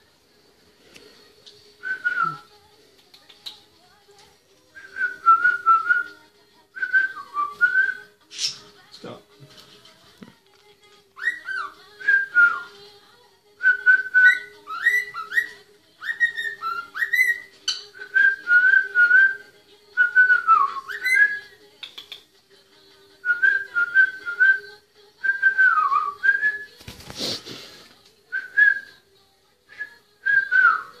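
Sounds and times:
cockatiel whistling: 11.2 - 12.7, 13.8 - 19.4, 20.0 - 21.6
rustling noise: 26.7 - 28.0.

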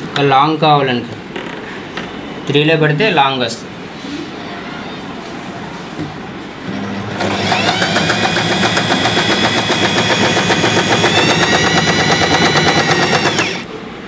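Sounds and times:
electric sewing machine stitching: 6.7 - 13.7.

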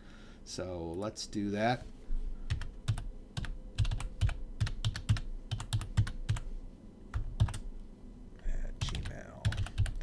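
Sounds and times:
typing on computer keyboard: 2.5 - 6.5, 7.1 - 7.6, 8.8 - 10.0.

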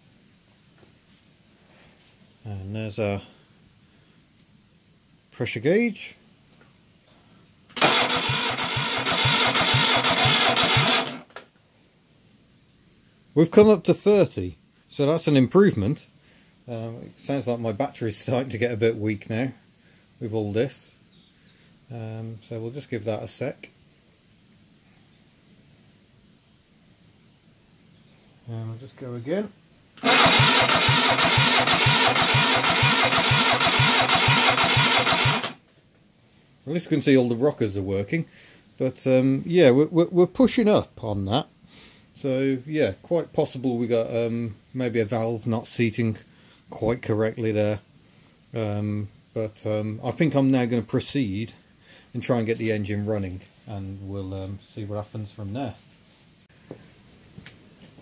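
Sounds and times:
starter motor cranking engine: 7.8 - 11.3, 30.0 - 35.6.

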